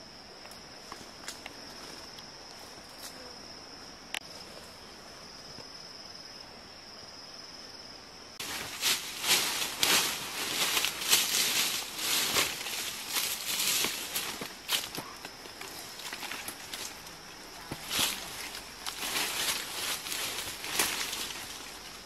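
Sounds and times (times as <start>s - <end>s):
dry leaves crunching underfoot: 8.4s - 22.0s.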